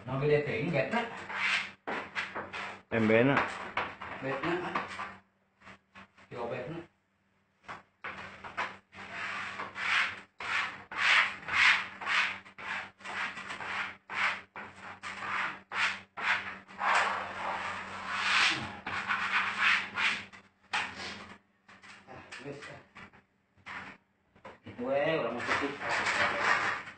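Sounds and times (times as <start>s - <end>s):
rubbing strokes on wallpaper: 1.0s - 6.3s, 8.0s - 22.0s, 25.3s - 26.9s.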